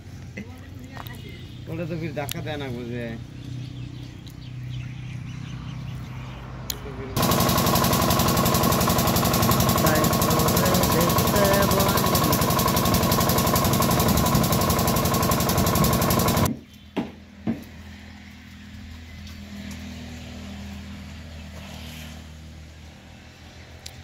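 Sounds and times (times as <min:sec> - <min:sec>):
diesel pump engine running: 0:06.7 - 0:16.5.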